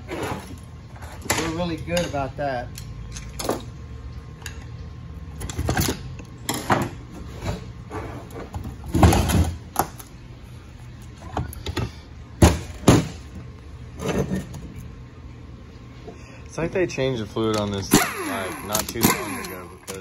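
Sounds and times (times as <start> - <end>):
metal clunks and scraping: 5.4 - 9.9, 13.9 - 14.9.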